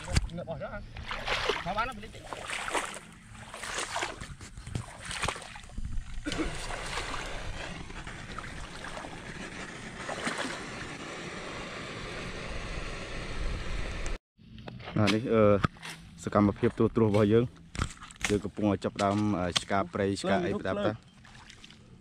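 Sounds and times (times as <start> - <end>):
wind buffeting microphone: 3.7 - 11.5.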